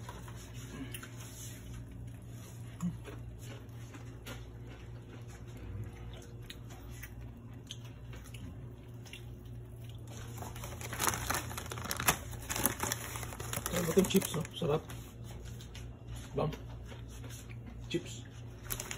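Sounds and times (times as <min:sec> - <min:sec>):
low steady hum: 0:00.0 - 0:18.9
chip bag crinkling: 0:08.9 - 0:14.9, 0:18.5 - 0:18.9.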